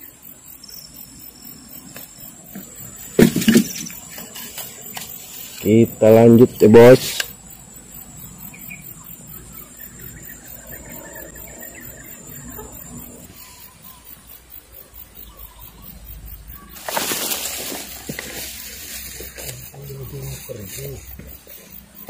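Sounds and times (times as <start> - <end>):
rustling noise: 2.9 - 5.8, 16.7 - 21.8
faint bird calls: 8.2 - 14.2, 14.8 - 22.0.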